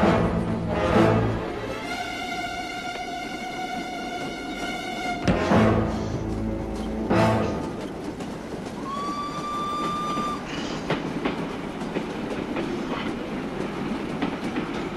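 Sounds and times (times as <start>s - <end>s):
train wheels clicking over rail joints: 2.9s - 14.9s
steam locomotive whistle: 8.8s - 10.7s.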